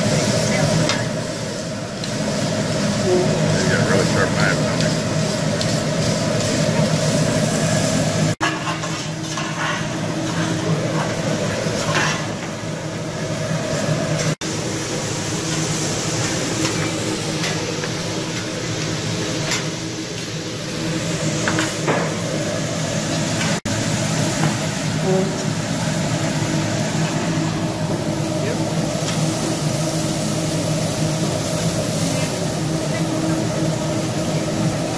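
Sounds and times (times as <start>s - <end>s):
food sizzling on a griddle: 0.0s - 34.9s.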